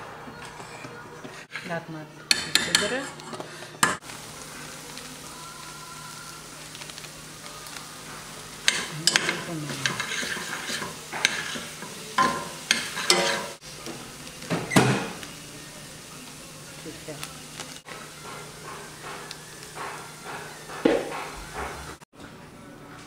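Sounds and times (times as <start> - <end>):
spoon scraping against pot: 0.4 - 4.0, 8.3 - 13.6
metal spoon stirring in a pot: 0.5 - 13.6
steady sizzle: 0.6 - 22.0.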